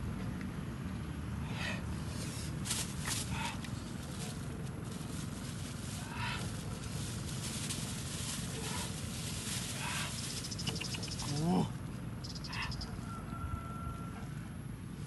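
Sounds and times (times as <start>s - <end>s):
outdoor background noise: 0.0s - 15.0s
rising call: 10.0s - 14.3s.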